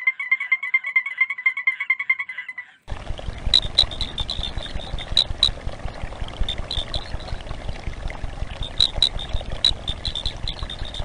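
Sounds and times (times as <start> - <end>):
frog chirping: 0.0 - 5.7, 6.4 - 7.5, 8.5 - 11.0
low steady noise: 2.9 - 11.0.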